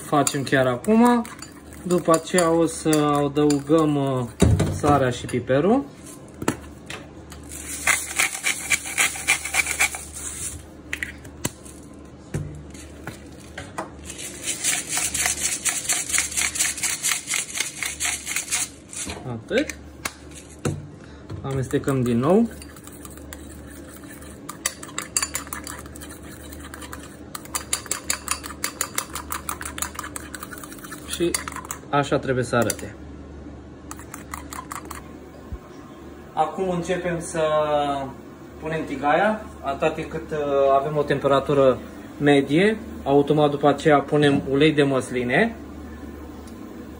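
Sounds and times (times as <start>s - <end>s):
fork clinking in ceramic bowl: 0.2s - 3.8s, 21.8s - 31.8s
spice mill grinding: 7.4s - 10.6s, 14.0s - 19.1s, 21.7s - 31.8s.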